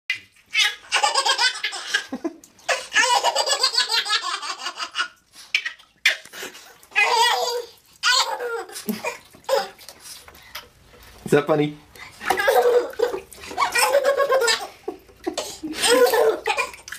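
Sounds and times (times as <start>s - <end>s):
baby laughing: 0.5s - 6.3s, 6.9s - 9.8s, 12.2s - 16.9s.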